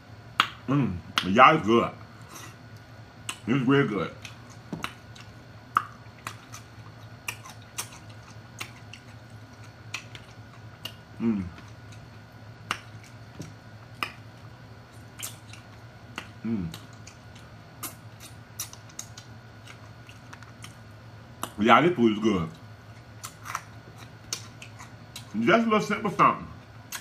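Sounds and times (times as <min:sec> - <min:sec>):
wet chewing smacks: 0:04.1 - 0:21.6, 0:22.4 - 0:25.4.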